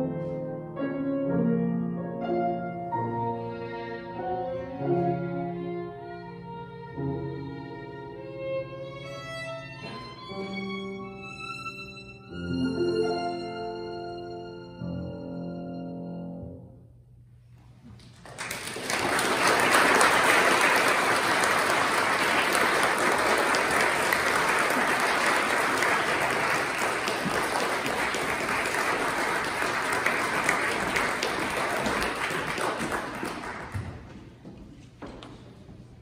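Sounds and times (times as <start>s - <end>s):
violin and piano chord: 0.0s - 16.8s
audience applauding: 18.0s - 34.2s.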